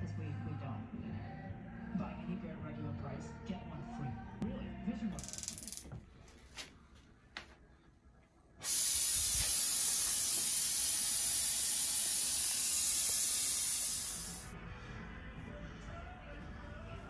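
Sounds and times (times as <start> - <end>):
gas torch flame hissing: 8.6 - 14.6.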